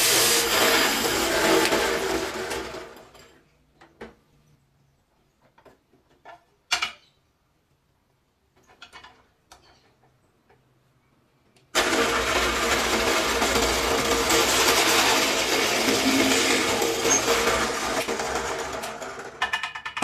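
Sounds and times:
drill press motor running: 0:00.0 - 0:03.0, 0:11.8 - 0:19.3.

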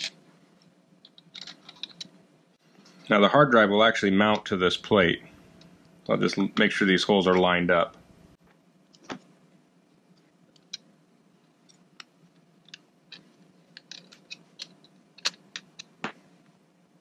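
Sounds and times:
tool and screws clicking: 0:01.1 - 0:02.1.

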